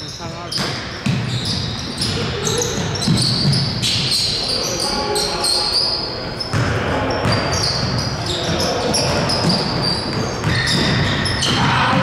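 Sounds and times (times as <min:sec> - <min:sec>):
sneaker squeaks: 0:00.0 - 0:12.0
basketball bouncing on hardwood: 0:00.6 - 0:03.8, 0:06.5 - 0:11.6.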